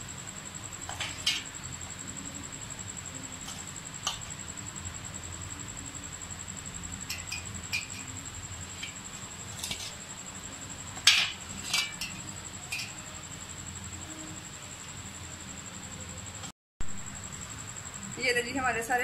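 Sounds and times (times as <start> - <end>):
metal spoon clinking on platter: 7.0 - 8.2, 11.0 - 13.0.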